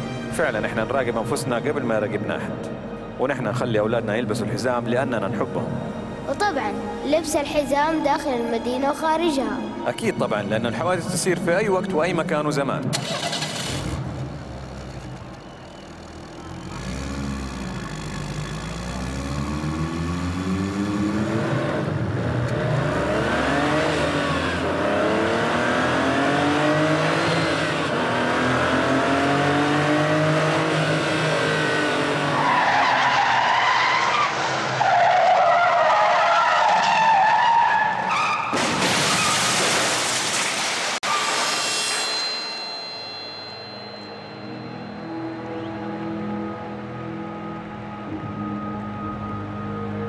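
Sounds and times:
car engines revving: 0:12.9 - 0:39.7
loud crash: 0:38.3 - 0:44.2.

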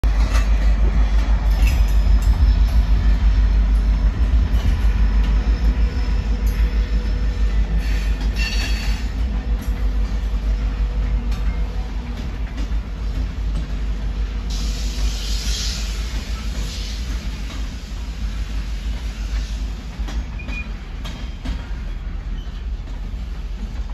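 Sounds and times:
train wheels rumbling on rails: 0:00.0 - 0:23.9
high wheel squeal: 0:05.3 - 0:09.1.

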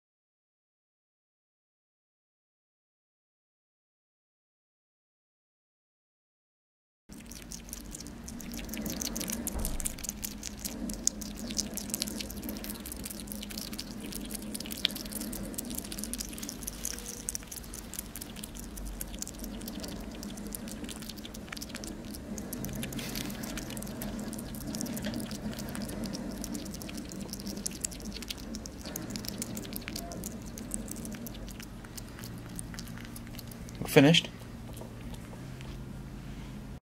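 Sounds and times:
hedgehog chewing: 0:07.1 - 0:35.9
steady low hum: 0:07.1 - 0:36.8.

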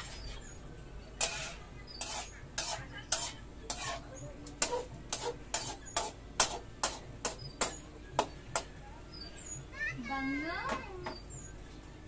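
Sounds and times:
kitchen utensils clacking: 0:01.2 - 0:04.0, 0:04.6 - 0:07.9.

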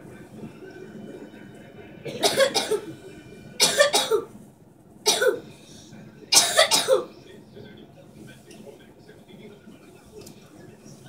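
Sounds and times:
person coughing: 0:02.1 - 0:02.9, 0:03.6 - 0:04.3, 0:05.1 - 0:05.5, 0:06.3 - 0:07.1.

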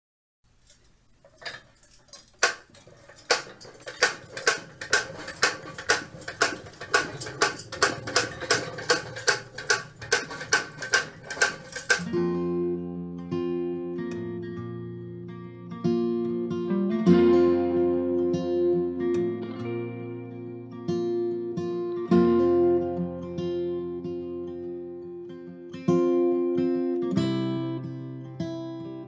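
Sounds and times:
hand seeder metallic clicks: 0:00.6 - 0:12.1
strummed acoustic guitar music: 0:01.2 - 0:29.0.

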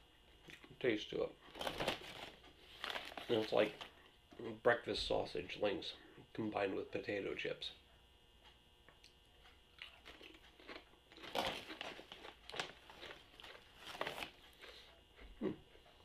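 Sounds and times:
potato chip crunching: 0:01.5 - 0:03.8, 0:09.8 - 0:14.8.

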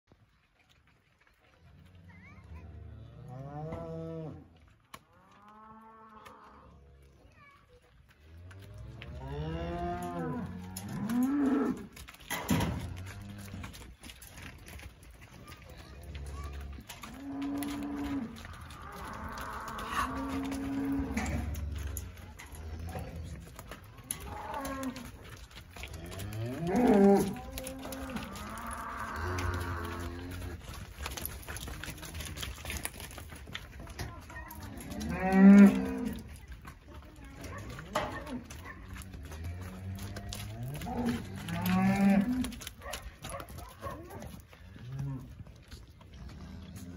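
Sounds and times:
hooves knocking on stony ground: 0:00.1 - 0:46.9
cow mooing: 0:08.8 - 0:11.9, 0:17.0 - 0:23.3, 0:25.9 - 0:30.6, 0:34.8 - 0:36.2, 0:39.2 - 0:42.6.

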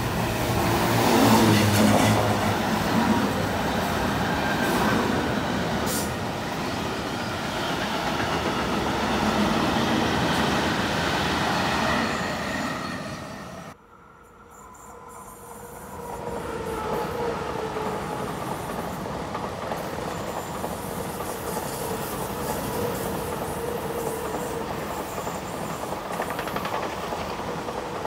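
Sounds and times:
train wheels clacking: 0:18.1 - 0:28.0.

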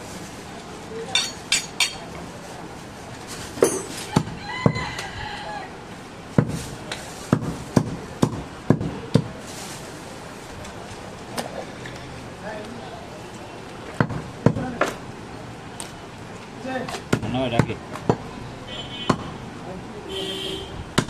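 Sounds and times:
cleaver chopping meat on wood: 0:07.3 - 0:09.3.

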